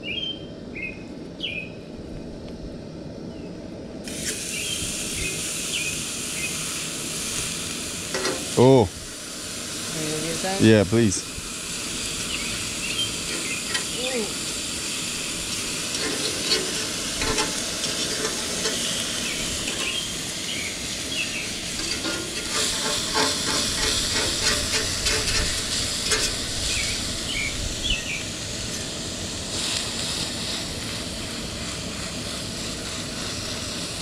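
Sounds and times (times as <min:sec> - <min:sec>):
burger patty sizzling on griddle: 0:04.0 - 0:34.0
metal fork scraping griddle: 0:08.1 - 0:08.5, 0:15.9 - 0:20.0, 0:21.7 - 0:26.5.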